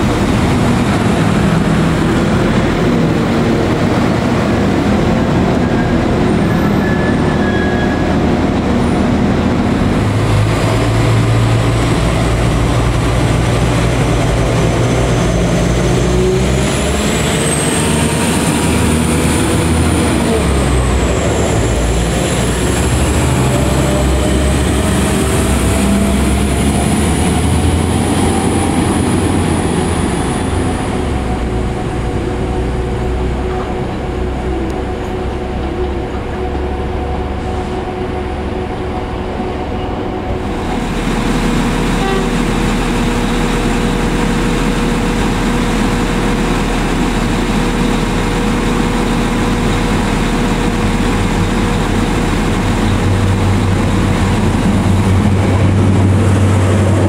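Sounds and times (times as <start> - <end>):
diesel train engine drone: 0.0 - 57.0
rising whine: 0.0 - 57.0
train wheels on rails: 0.0 - 57.0.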